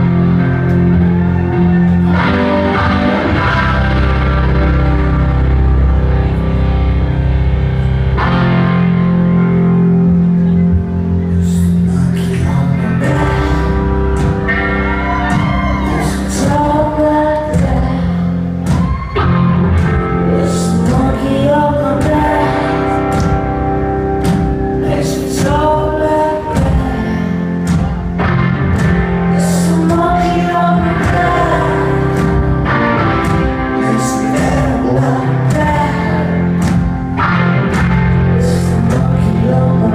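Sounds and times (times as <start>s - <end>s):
electric guitar: 0.0s - 39.9s
woman singing: 12.0s - 14.2s, 15.0s - 19.1s, 20.2s - 23.4s, 24.8s - 27.7s, 29.3s - 32.8s, 33.7s - 36.7s, 38.4s - 39.9s.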